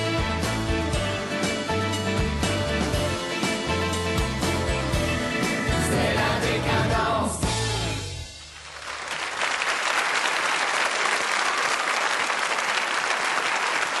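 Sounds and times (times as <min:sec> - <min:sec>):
audience applause: 0:08.5 - 0:14.0.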